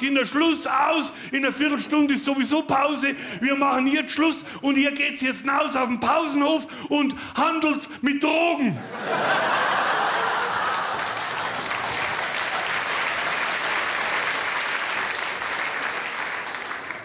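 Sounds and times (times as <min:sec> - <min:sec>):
audience laughing: 0:08.7 - 0:12.0
audience clapping: 0:09.7 - 0:17.0.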